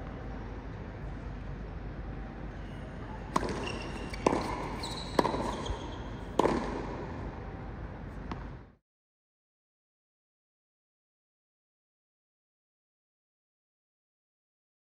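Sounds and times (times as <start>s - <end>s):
steady background hiss: 0.0s - 8.8s
tennis ball hits echoing: 3.3s - 7.5s.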